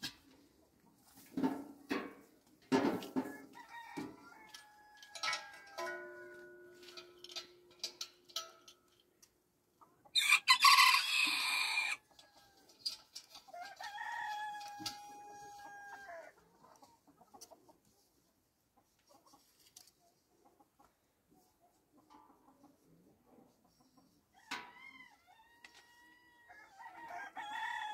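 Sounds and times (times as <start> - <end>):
chickens clucking: 0.0 - 6.0, 9.6 - 24.6
rooster crowing: 10.2 - 12.1, 24.5 - 27.9.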